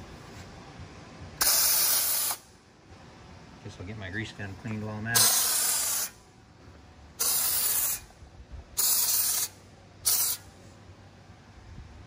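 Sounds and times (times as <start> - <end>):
foam sprayer hissing: 1.4 - 2.4, 5.2 - 6.2, 7.2 - 8.1, 8.8 - 10.5.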